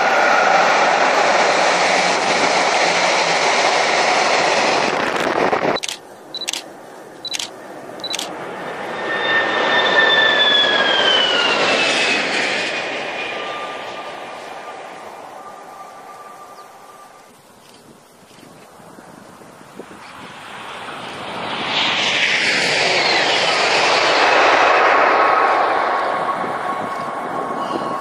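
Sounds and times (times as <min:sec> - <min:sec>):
high-speed train passing: 0:00.0 - 0:17.4, 0:18.8 - 0:28.0
sharp clicks: 0:05.8 - 0:06.7, 0:07.3 - 0:08.3.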